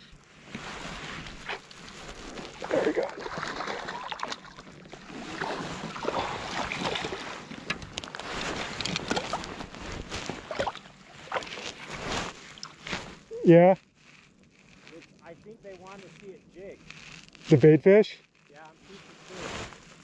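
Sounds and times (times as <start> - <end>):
water splashing and sloshing: 0.4 - 13.3
fish thrashing in net: 1.2 - 13.2.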